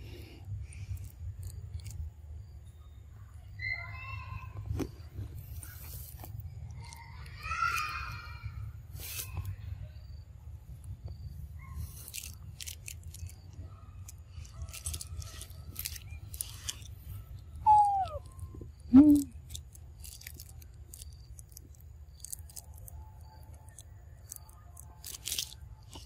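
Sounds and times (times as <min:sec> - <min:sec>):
rustling: 0:11.5 - 0:26.0
young monkeys calling: 0:17.6 - 0:19.4.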